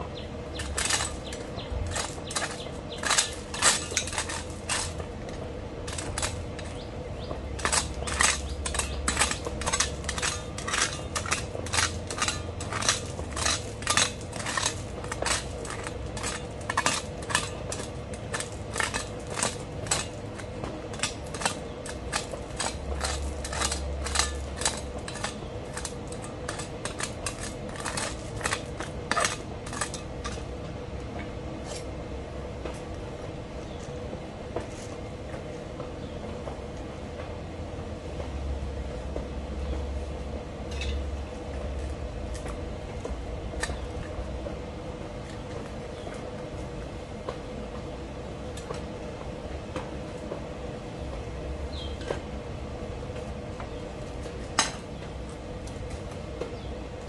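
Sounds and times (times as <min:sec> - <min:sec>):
gravel clinking and scraping: 0:00.0 - 0:30.6, 0:40.6 - 0:44.4.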